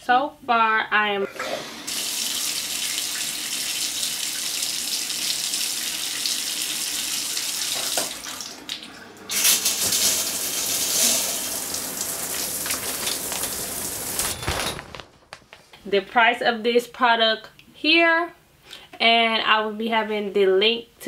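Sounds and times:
shower water spraying: 0:01.4 - 0:14.4.

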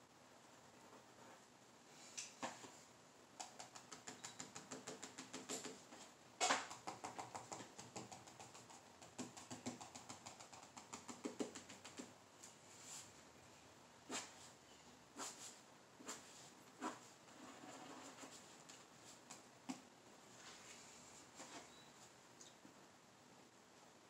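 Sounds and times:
pen scratching on paper: 0:15.2 - 0:19.2.

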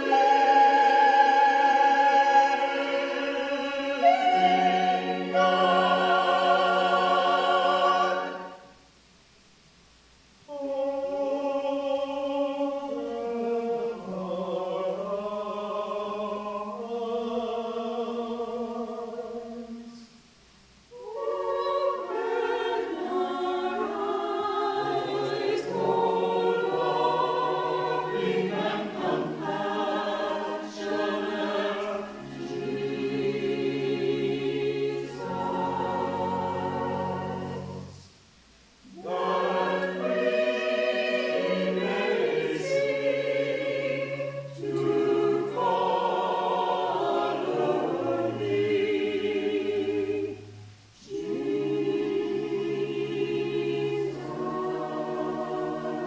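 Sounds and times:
choir singing: 0:00.0 - 0:08.8, 0:10.5 - 0:20.2, 0:20.9 - 0:38.2, 0:38.8 - 0:56.0.

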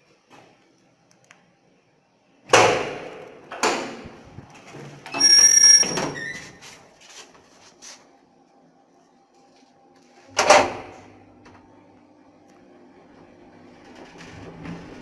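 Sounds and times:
elevator doors banging shut: 0:02.5 - 0:06.5, 0:10.3 - 0:11.1
loud steady ringing tone: 0:05.1 - 0:06.4.

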